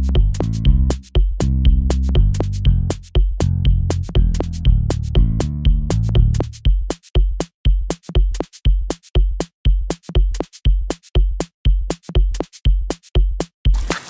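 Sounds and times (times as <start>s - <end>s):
bass line: 0.0s - 6.7s
hi-hat ticks: 0.0s - 13.6s
drum-machine beat: 0.0s - 14.0s.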